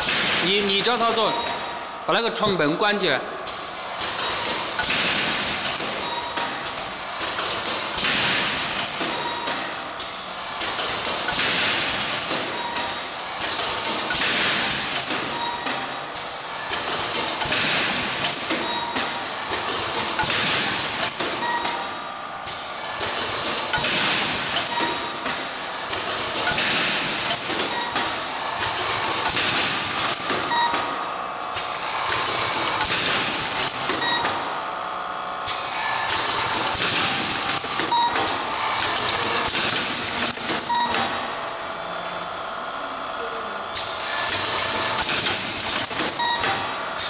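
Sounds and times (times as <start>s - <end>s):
assembly machine high hiss: 0.0s - 2.2s, 3.5s - 6.3s, 7.0s - 9.4s, 10.0s - 15.6s, 16.2s - 21.8s, 22.5s - 30.6s.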